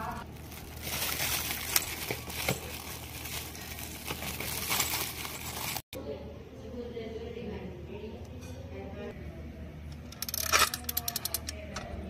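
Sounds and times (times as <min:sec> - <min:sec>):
plastic wrapping crinkling: 0:00.2 - 0:05.9.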